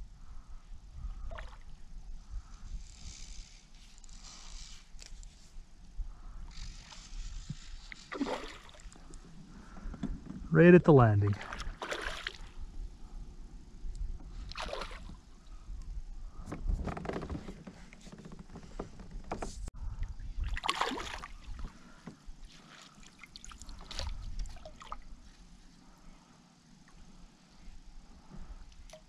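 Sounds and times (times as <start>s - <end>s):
water sloshing against hull: 6.6s - 10.6s, 11.2s - 13.2s, 13.9s - 26.1s.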